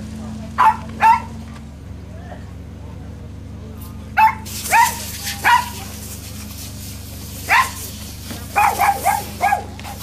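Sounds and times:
dog barking: 0:00.6 - 0:01.3, 0:04.2 - 0:05.8, 0:07.5 - 0:07.8, 0:08.5 - 0:10.0.

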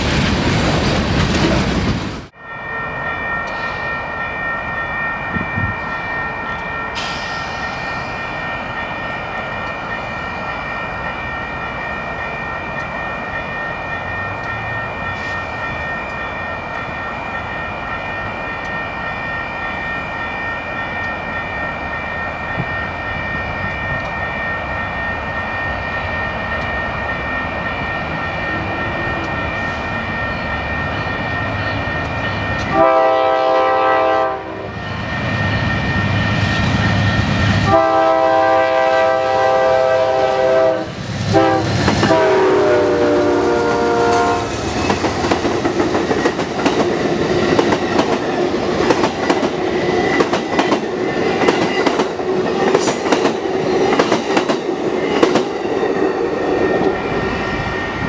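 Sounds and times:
passenger train running noise: 0:00.0 - 0:58.0
locomotive horn blasts: 0:32.7 - 0:34.8, 0:37.6 - 0:44.6.

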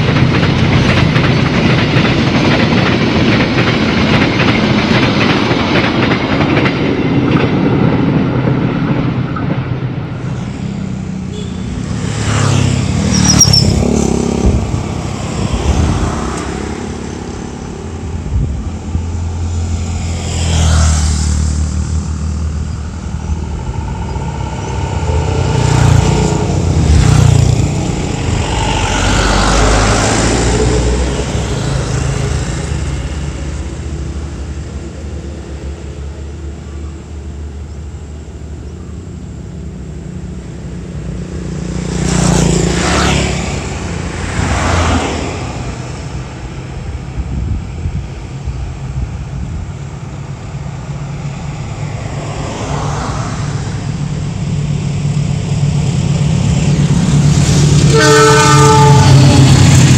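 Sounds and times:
cars passing: 0:00.0 - 0:59.9
train carriages rumbling past: 0:00.0 - 0:59.9
motorcycles passing: 0:10.5 - 0:34.9, 0:39.2 - 0:48.6, 0:50.4 - 0:59.9.

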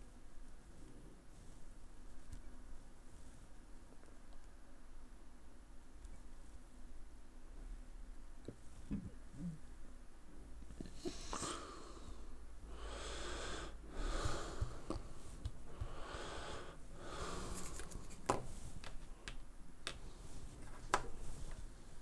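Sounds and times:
heavy breathing: 0:10.9 - 0:18.2.

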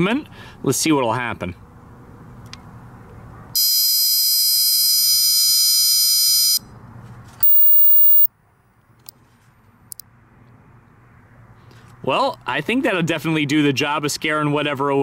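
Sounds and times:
high-pitched electronic buzz: 0:07.4 - 0:08.3
thin high electronic tone: 0:07.4 - 0:08.3.

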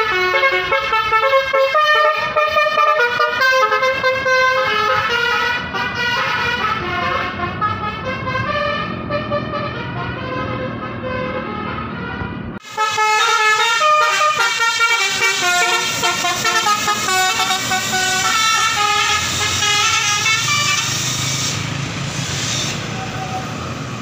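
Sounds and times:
air horns playing a tune: 0:00.0 - 0:21.7
bus engine: 0:00.0 - 0:24.0
air hiss: 0:20.7 - 0:23.1.

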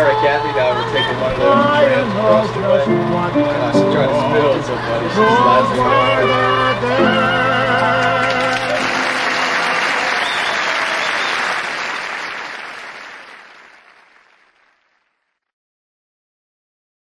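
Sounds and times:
audience applauding: 0:07.0 - 0:15.2.

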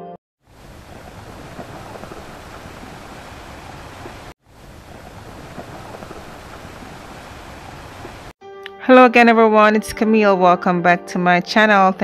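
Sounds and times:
steady rushing noise: 0:00.4 - 0:08.3.

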